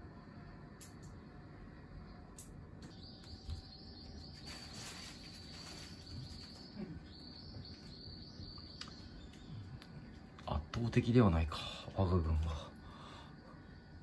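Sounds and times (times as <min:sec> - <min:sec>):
high-pitched insect trill: 0:02.4 - 0:09.7.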